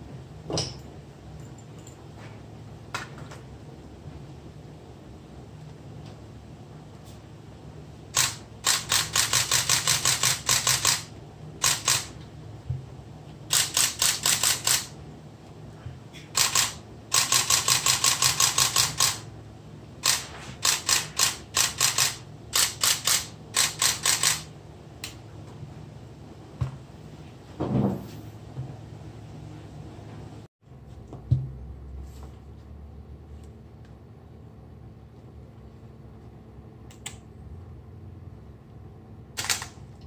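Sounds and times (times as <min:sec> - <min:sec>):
camera shutter clicking bursts: 0:08.2 - 0:12.2, 0:13.5 - 0:15.0, 0:16.4 - 0:19.3, 0:20.0 - 0:24.5, 0:39.4 - 0:39.8.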